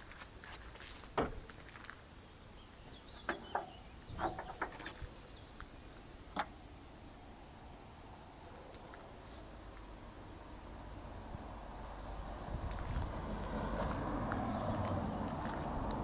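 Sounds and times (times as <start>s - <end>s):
sharp knocks and clicks: 3.2s - 4.8s.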